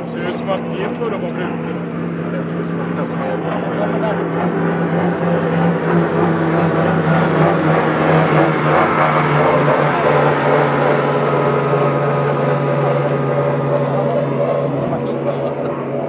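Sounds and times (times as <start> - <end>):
outboard engine at high speed: 0.0 - 16.0.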